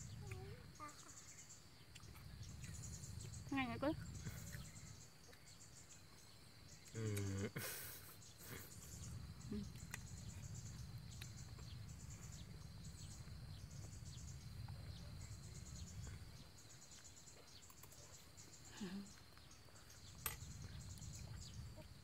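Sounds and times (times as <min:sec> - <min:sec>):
insects chirping: 0:00.0 - 0:22.0
faint low rumble: 0:08.5 - 0:17.6.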